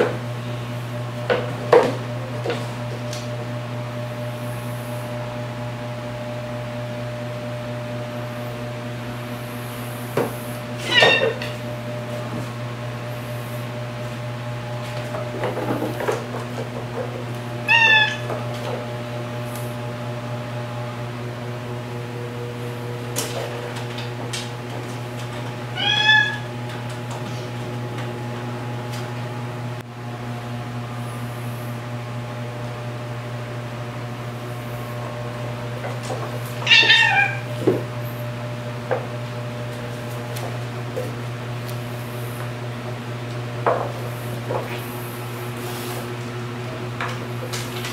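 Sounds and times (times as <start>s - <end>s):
steady low hum: 0.0s - 47.9s
cat meowing: 10.8s - 11.4s, 17.6s - 18.3s, 25.7s - 26.5s, 36.6s - 37.4s.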